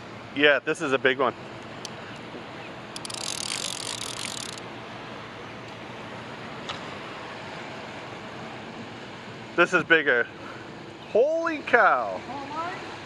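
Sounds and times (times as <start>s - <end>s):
steady background noise: 0.0s - 13.0s
fishing reel drag buzzing: 2.9s - 4.6s.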